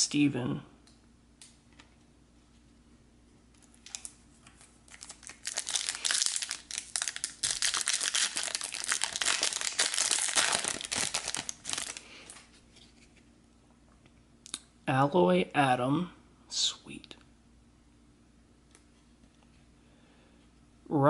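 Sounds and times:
foil wrapper crinkling: 3.7 - 12.4.

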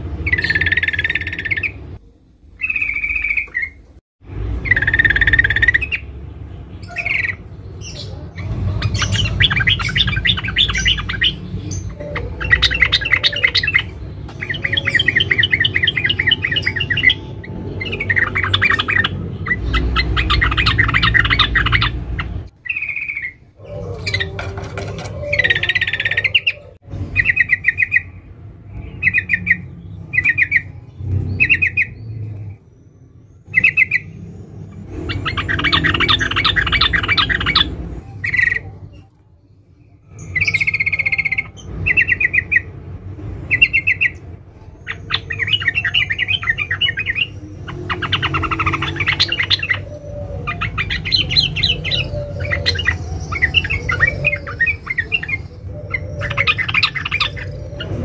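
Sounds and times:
bird chirping and chattering: 0.0 - 2.0, 2.6 - 3.8, 4.5 - 28.2, 28.8 - 58.0.

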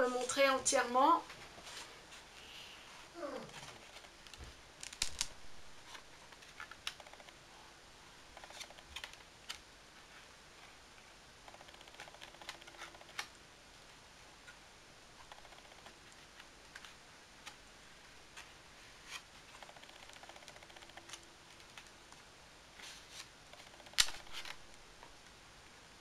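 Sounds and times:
pages turning: 3.5 - 7.3, 8.4 - 10.7, 18.3 - 21.9, 22.8 - 24.8.

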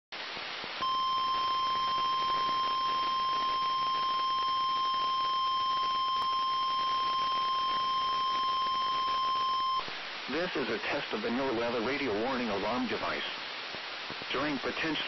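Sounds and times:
radio static hiss: 0.2 - 15.0
steady alarm tone: 0.8 - 9.9.

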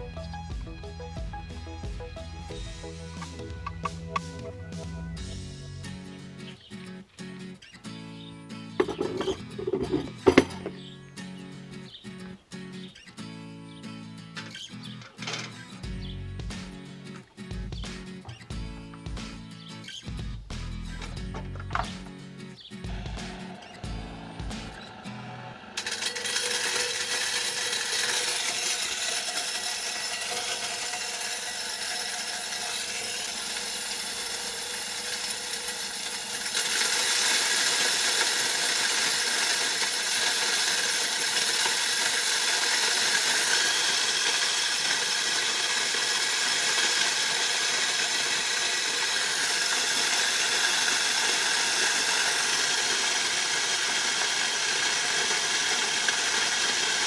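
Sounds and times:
grain crusher grinding corn: 0.0 - 4.5, 8.8 - 10.9, 22.8 - 57.0.

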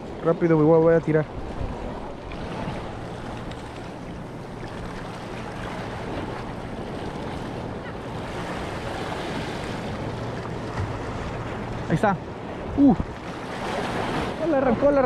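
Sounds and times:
wind on microphone: 0.0 - 11.8
sea surf against rocks: 0.0 - 15.0.

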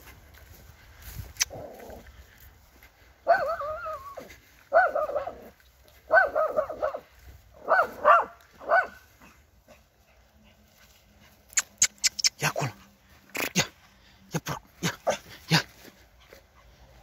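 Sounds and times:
dog barking: 3.2 - 5.5, 6.1 - 9.4.

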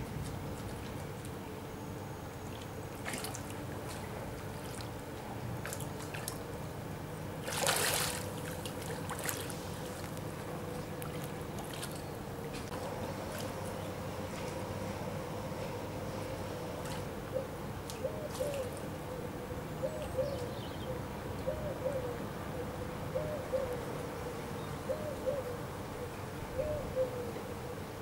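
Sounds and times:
otter diving splash: 7.4 - 10.0.

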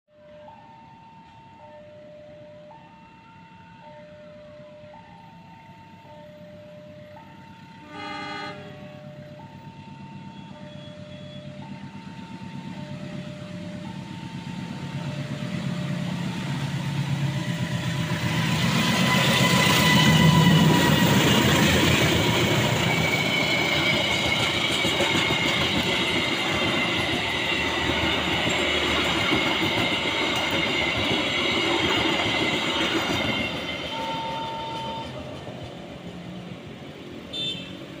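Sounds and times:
train wheels rumbling on rails: 7.4 - 38.0
crossing signal alternating tones: 32.8 - 35.2.

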